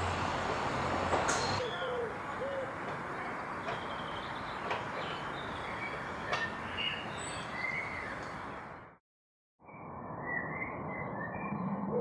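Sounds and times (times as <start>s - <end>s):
small birds chirping: 1.3s - 9.0s.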